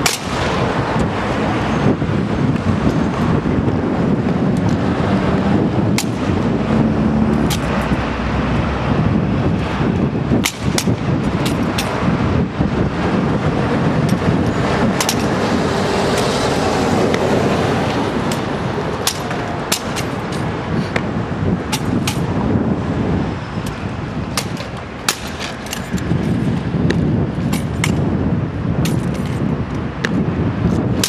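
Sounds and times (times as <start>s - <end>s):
low outdoor rumble: 0.0s - 31.0s.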